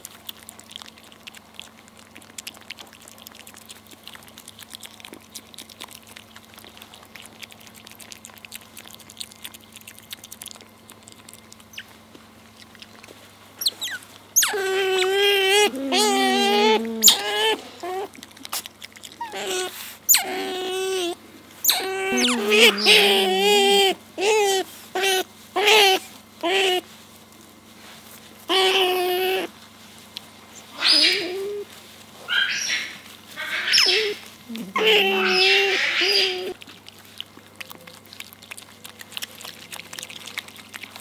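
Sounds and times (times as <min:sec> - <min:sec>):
otters chewing with crunching clicks: 0:00.0 - 0:41.0
otter pups squealing begging calls: 0:13.6 - 0:18.2, 0:19.2 - 0:26.8, 0:28.5 - 0:29.5, 0:30.6 - 0:36.7.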